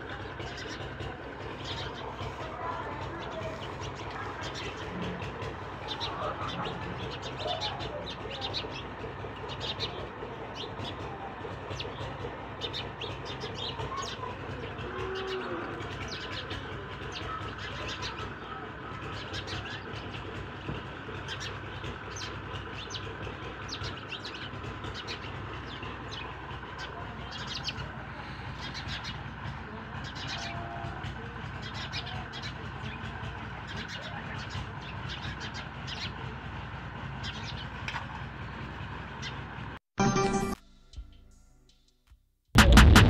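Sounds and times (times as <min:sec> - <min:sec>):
chickens chirping: 0:00.0 - 0:20.3.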